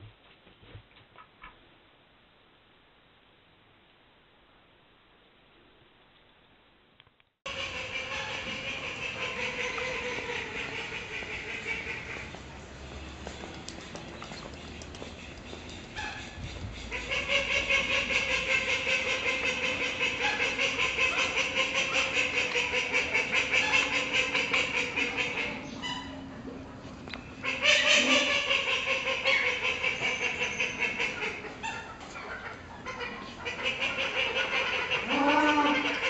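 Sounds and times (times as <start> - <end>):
ducks quacking: 7.5 - 12.5, 13.6 - 26.2, 27.4 - 36.0.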